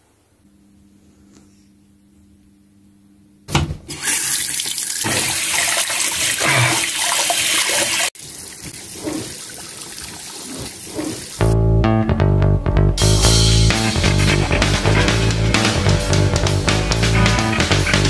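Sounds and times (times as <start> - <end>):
water running from a sink tap: 4.0 - 11.4
hands washing under water: 4.5 - 11.5.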